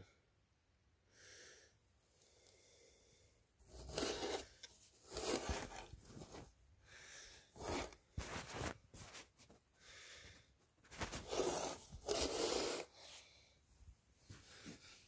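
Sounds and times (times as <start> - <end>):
phone handling rustling and scraping: 3.8 - 6.5.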